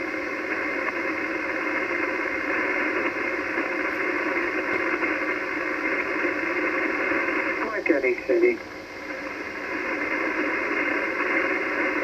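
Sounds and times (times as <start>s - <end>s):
radio static hiss: 0.0s - 12.0s.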